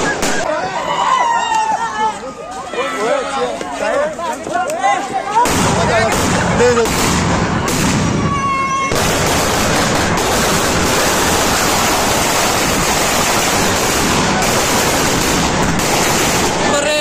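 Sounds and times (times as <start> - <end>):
firecrackers crackling: 0.0 - 0.6, 5.4 - 17.0.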